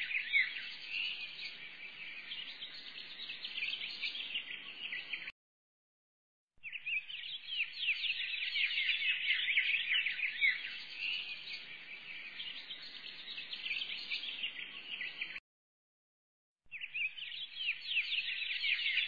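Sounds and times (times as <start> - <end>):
flock of small birds chirping: 0.0 - 5.3, 6.6 - 15.4, 16.7 - 19.0.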